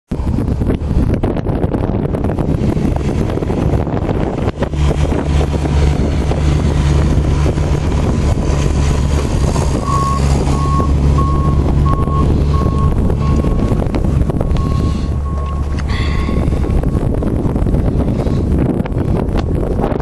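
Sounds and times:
heavy vehicle engine droning: 0.1 - 20.0
wind buffeting microphone: 0.1 - 20.0
backup alarm beeping: 9.8 - 13.8, 14.4 - 15.9.

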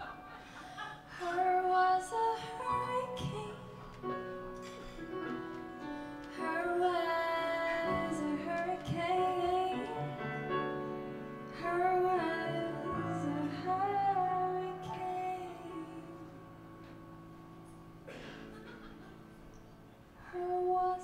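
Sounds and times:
piano: 0.0 - 21.0
woman singing into a microphone: 1.0 - 4.2, 6.3 - 10.4, 11.5 - 16.5, 20.2 - 21.0.

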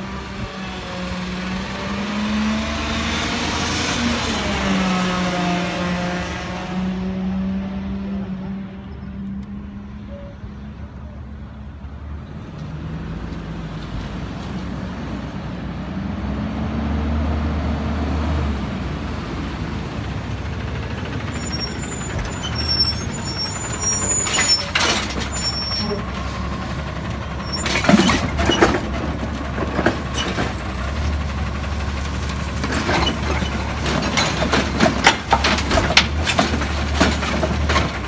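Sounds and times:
high brake squeals: 10.0 - 10.6, 21.2 - 28.6
garbage truck engine: 10.1 - 38.0.

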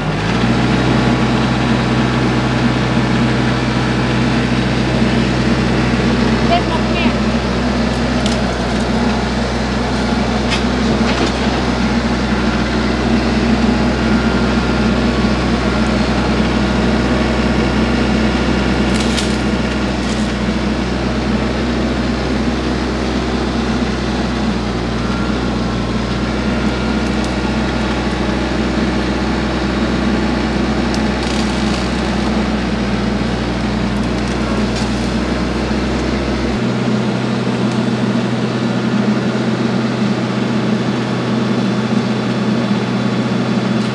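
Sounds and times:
tree shear cutting brush: 0.0 - 40.0
tractor diesel engine running: 0.0 - 43.9
wood cracking and snapping: 7.9 - 11.8, 18.3 - 20.9, 26.0 - 28.4, 30.4 - 36.4.

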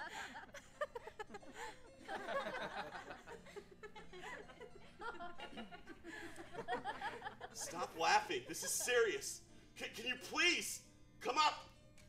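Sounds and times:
audience snickering and chuckling: 0.0 - 8.9.

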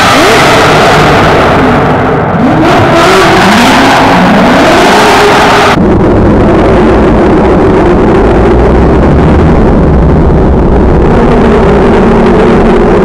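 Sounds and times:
engine at high revs: 0.0 - 13.0.

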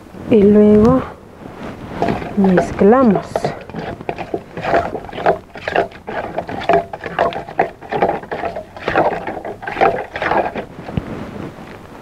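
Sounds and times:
spoon scraping steel bowl: 1.9 - 11.0.

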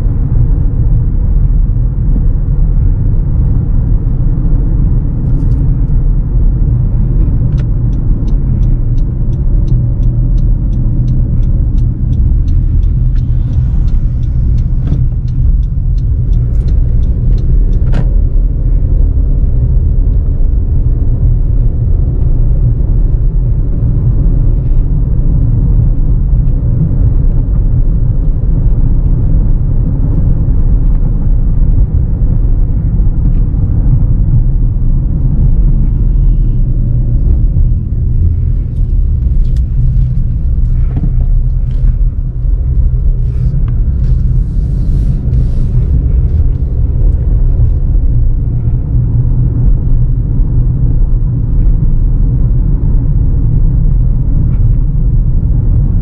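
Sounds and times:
car interior road and engine rumble: 0.0 - 56.0
light regular ticks: 6.7 - 21.4, 35.5 - 49.7.

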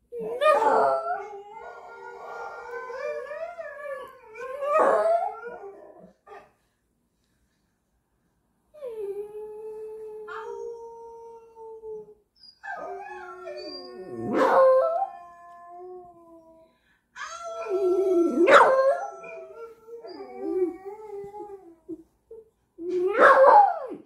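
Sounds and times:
dogs howling: 0.2 - 6.1, 12.6 - 16.1.

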